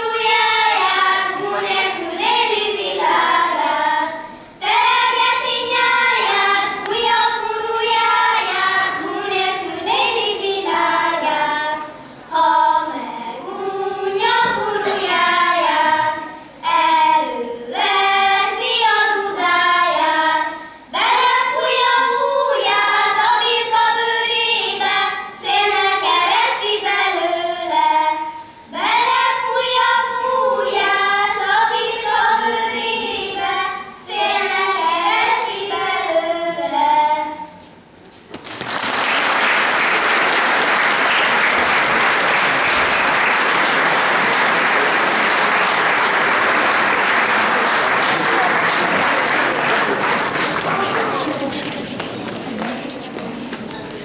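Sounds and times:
children singing: 0.0 - 37.6.

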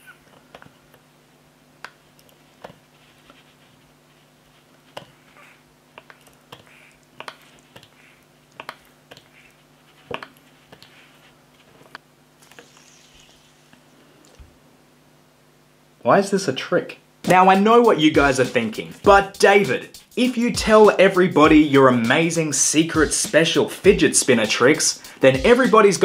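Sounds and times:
faint steady hum: 0.0 - 26.0
soft wet squishes: 1.8 - 14.6.

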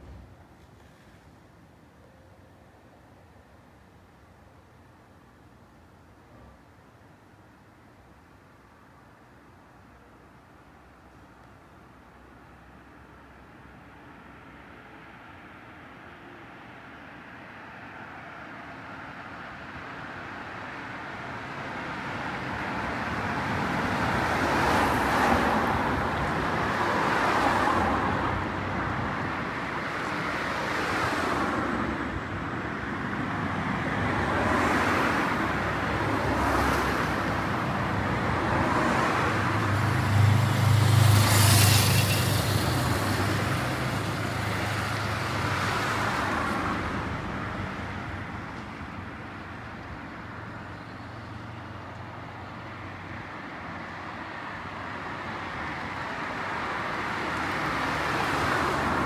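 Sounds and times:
cars passing: 12.0 - 59.0.

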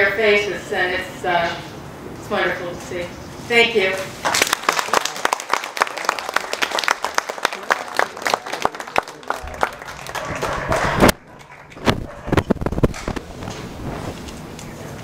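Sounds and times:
small audience applauding: 4.2 - 11.9.

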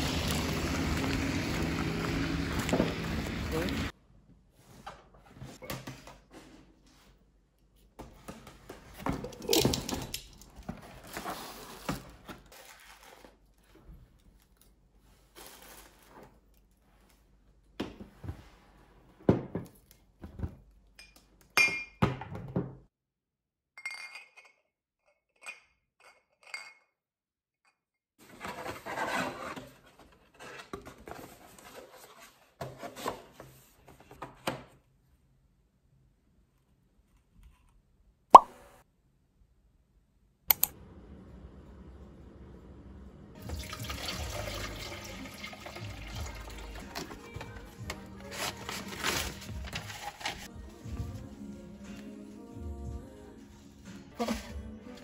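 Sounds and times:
cardboard and paper rustling: 8.1 - 17.1, 28.2 - 34.5, 46.9 - 51.2, 54.2 - 55.0
glass bottles clinking: 21.0 - 22.0, 23.8 - 24.6.

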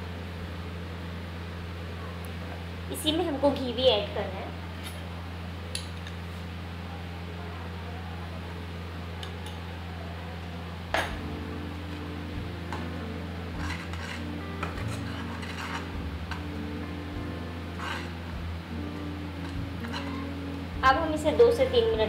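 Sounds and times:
steady low hum: 0.0 - 22.0
spoon stirring thick mixture: 13.5 - 16.0.

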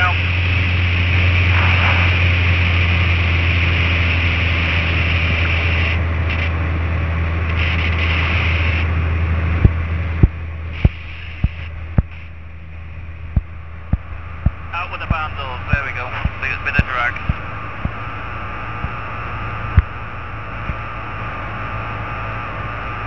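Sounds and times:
aircraft engine and propeller droning: 0.0 - 23.0.

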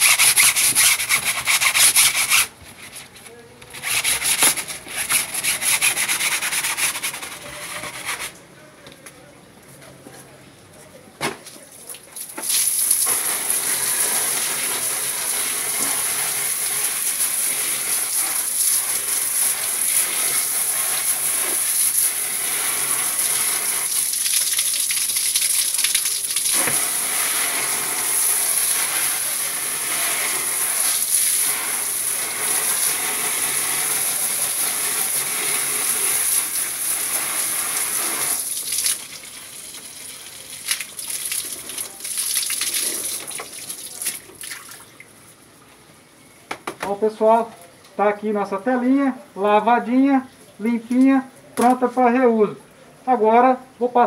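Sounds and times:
garden hose spraying water: 0.0 - 2.6, 11.6 - 44.8.

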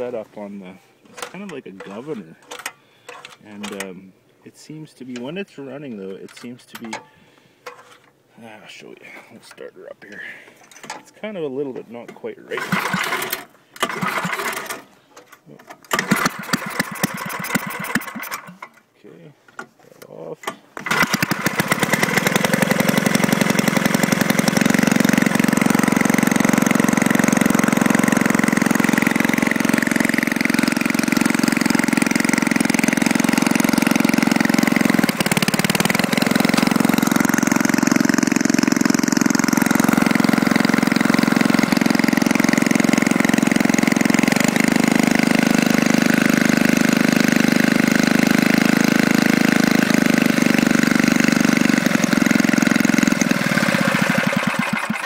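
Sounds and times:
snowblower engine running: 12.5 - 14.9, 15.9 - 18.6, 20.8 - 55.0.

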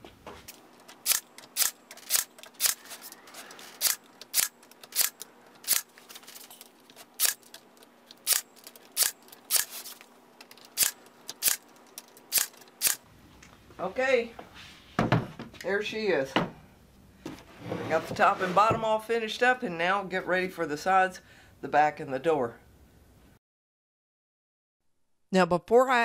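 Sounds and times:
nail gun firing: 1.0 - 2.8, 10.8 - 11.6, 12.3 - 13.0.

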